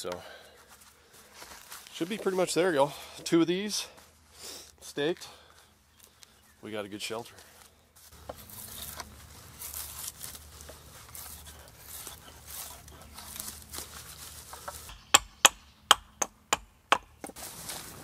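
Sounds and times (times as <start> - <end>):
rustling: 0.6 - 2.8, 7.4 - 15.0, 17.2 - 18.0
hatchet chopping wood: 14.6 - 17.4.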